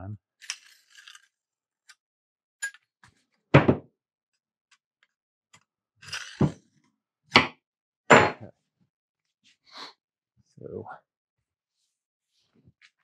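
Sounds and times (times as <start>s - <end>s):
loud thunk on wood: 3.6s - 3.9s, 8.1s - 8.4s.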